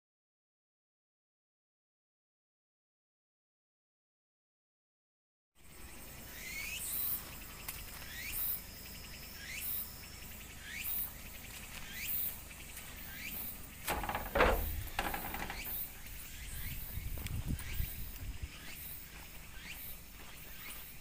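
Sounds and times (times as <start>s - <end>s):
loud rustling thump: 13.9s - 15.9s.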